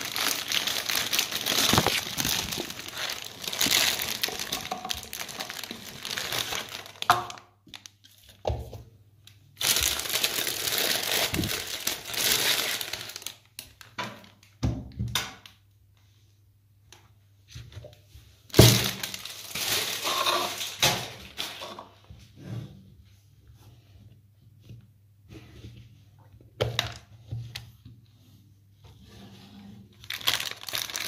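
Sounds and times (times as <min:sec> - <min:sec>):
foil wrapping crinkling: 0:00.0 - 0:08.3, 0:09.6 - 0:14.4, 0:18.5 - 0:21.8, 0:30.0 - 0:31.0.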